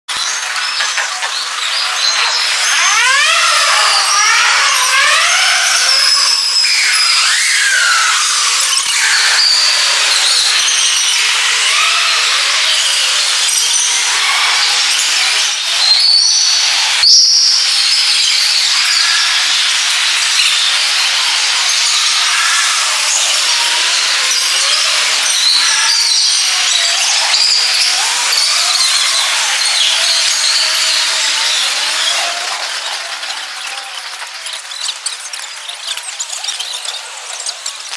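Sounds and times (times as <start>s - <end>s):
inline skate wheels whirring: 0.2s - 37.9s.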